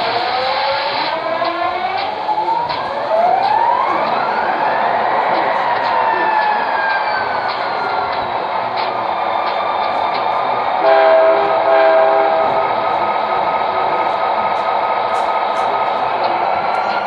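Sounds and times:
model train rolling on track: 0:00.0 - 0:17.0
train horn blasts: 0:10.8 - 0:12.6.

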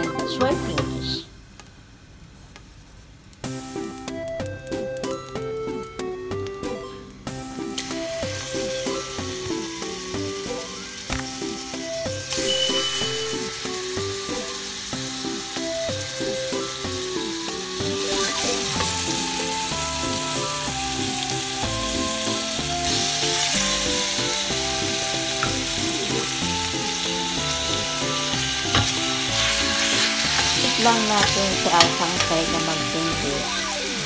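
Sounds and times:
background music: 0:00.0 - 0:01.3, 0:03.5 - 0:34.0
meat sizzling in hot oil: 0:07.3 - 0:34.0.

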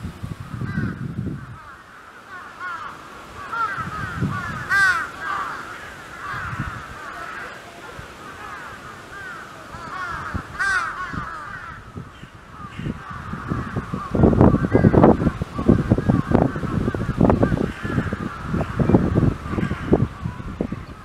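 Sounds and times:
birds calling: 0:00.0 - 0:21.0.

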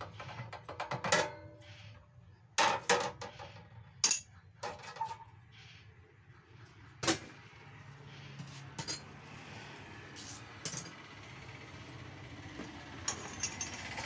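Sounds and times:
metal parts clinking: 0:04.0 - 0:04.4, 0:13.1 - 0:13.8.

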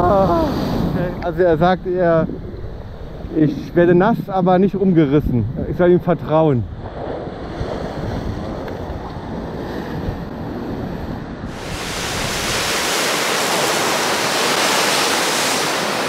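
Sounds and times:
wind buffeting microphone: 0:00.0 - 0:16.0
surf breaking on rocks: 0:11.5 - 0:16.0.

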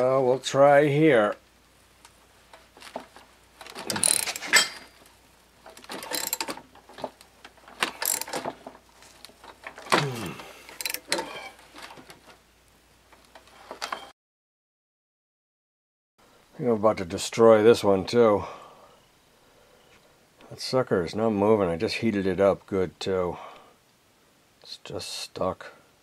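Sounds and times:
metal clicking: 0:02.0 - 0:10.0, 0:10.6 - 0:12.2
socket wrench ratcheting: 0:03.7 - 0:05.0, 0:05.8 - 0:06.6, 0:07.8 - 0:08.6, 0:10.6 - 0:11.5.

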